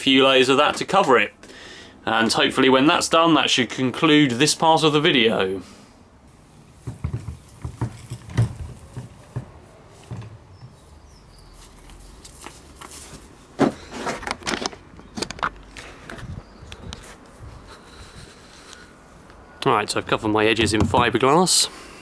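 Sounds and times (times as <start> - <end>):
handling knocks and rustles: 6.4 - 17.3.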